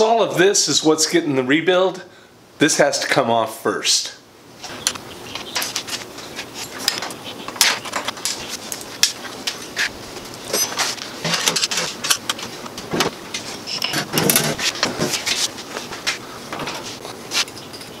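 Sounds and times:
steel parts clanking on workbench: 0:10.5 - 0:12.4.

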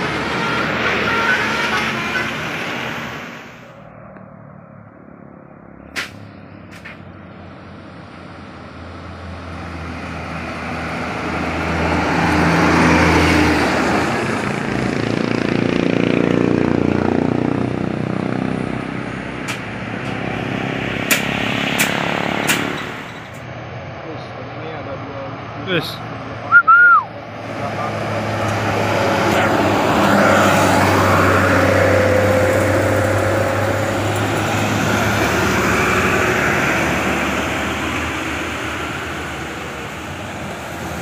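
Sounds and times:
bus diesel engine drone: 0:00.0 - 0:41.0
buses and trucks driving past: 0:00.0 - 0:41.0.

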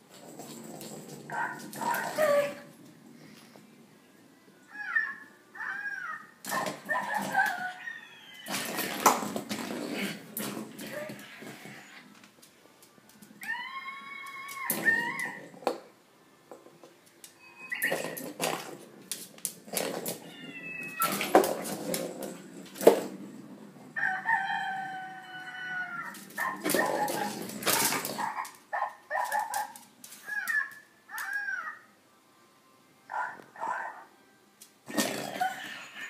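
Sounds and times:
ball clattering on tiles: 0:00.1 - 0:02.6, 0:08.5 - 0:11.6, 0:17.8 - 0:20.3, 0:21.0 - 0:23.9, 0:26.1 - 0:28.6, 0:34.9 - 0:35.6
toy ball electronic animal calls: 0:13.4 - 0:15.6, 0:17.4 - 0:18.6, 0:30.2 - 0:31.9
dog claws on tiles: 0:17.9 - 0:20.3, 0:26.1 - 0:31.4.

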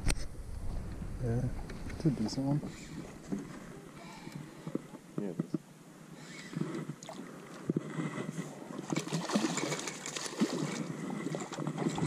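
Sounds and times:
water lapping against boat: 0:06.2 - 0:12.0.

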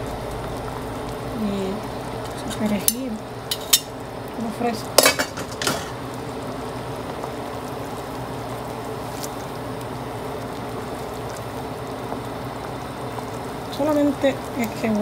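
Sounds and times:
low hum: 0:00.0 - 0:04.4
pot of broth boiling: 0:00.0 - 0:15.0.

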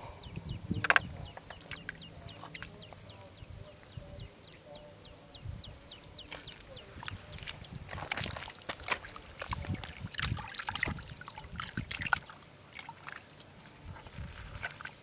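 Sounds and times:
water trickling: 0:05.9 - 0:15.0
water splashing: 0:06.1 - 0:15.0
hands squelching in wet mud: 0:06.3 - 0:15.0.

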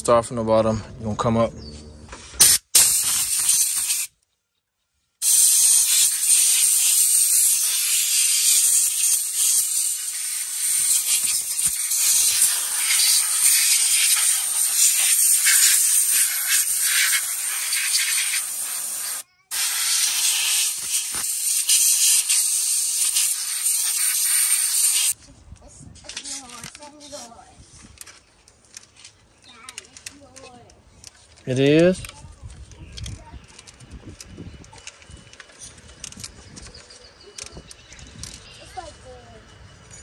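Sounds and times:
steady loud hissing: 0:05.2 - 0:25.2.

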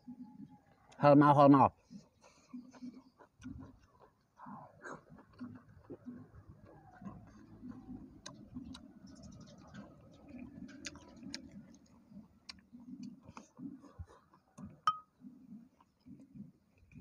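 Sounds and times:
person chewing food: 0:01.7 - 0:17.0
lip smacks: 0:01.9 - 0:14.9.

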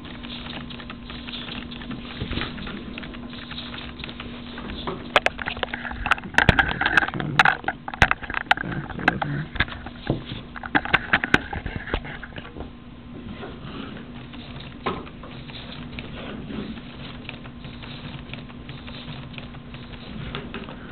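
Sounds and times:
sharp clicks and knocks: 0:00.0 - 0:12.5.

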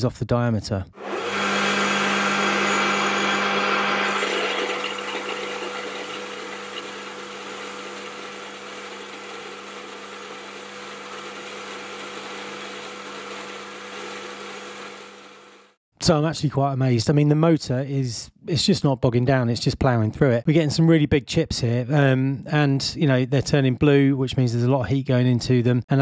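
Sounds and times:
lathe cutting steel: 0:01.0 - 0:15.8.

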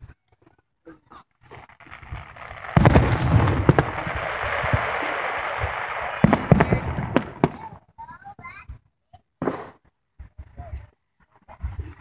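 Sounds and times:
fireworks crackling: 0:01.4 - 0:08.6
fireworks bangs: 0:01.5 - 0:08.0.

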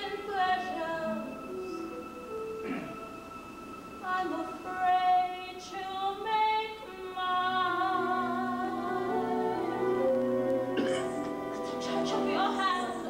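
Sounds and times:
orchestral accompaniment: 0:00.3 - 0:06.0, 0:07.5 - 0:13.0
woman singing long held notes: 0:04.0 - 0:13.0.

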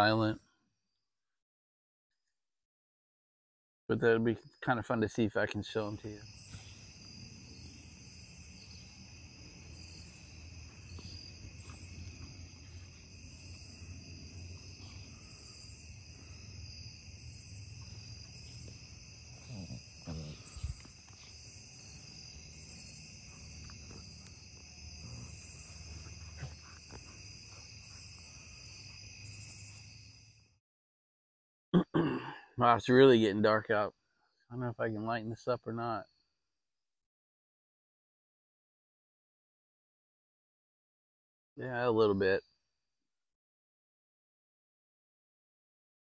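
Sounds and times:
crickets trilling: 0:04.4 - 0:30.4
high pulsing insect call: 0:04.4 - 0:30.6.

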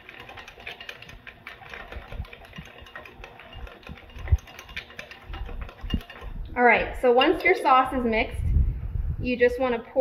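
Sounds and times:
whisk clicking against glass: 0:00.0 - 0:07.9.

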